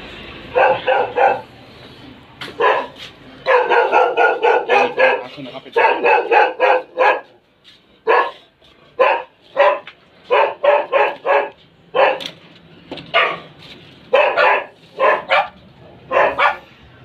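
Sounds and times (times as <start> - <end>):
dog barking: 0.5 - 1.5, 2.6 - 7.4, 8.0 - 12.3, 13.1 - 13.5, 14.1 - 16.7.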